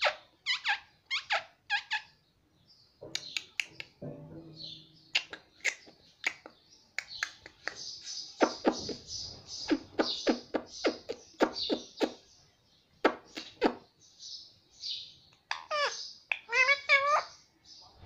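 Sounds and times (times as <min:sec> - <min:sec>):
parakeet hissy chatter: 0:08.4 - 0:12.2, 0:13.0 - 0:13.9, 0:15.5 - 0:17.3.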